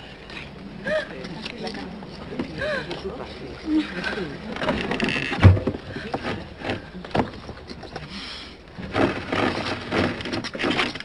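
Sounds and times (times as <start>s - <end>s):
heavy thump: 4.6s - 7.7s.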